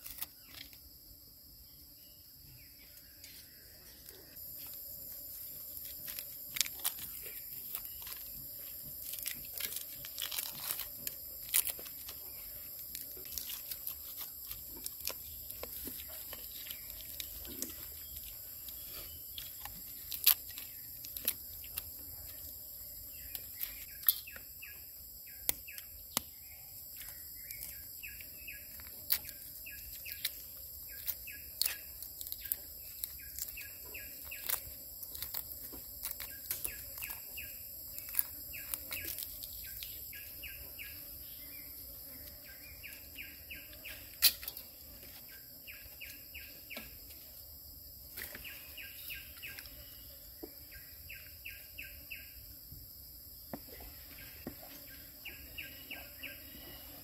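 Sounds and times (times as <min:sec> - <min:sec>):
eggshell being peeled: 0:00.0 - 0:00.9, 0:04.0 - 0:24.6, 0:25.4 - 0:40.4
insect buzz: 0:00.0 - 0:57.0
food crackling while eaten: 0:04.1 - 0:24.4, 0:26.9 - 0:40.4.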